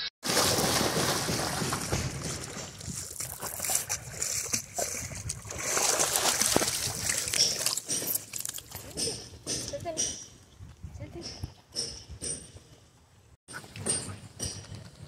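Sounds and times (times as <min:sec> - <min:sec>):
water splashing and sloshing: 0:00.2 - 0:09.0.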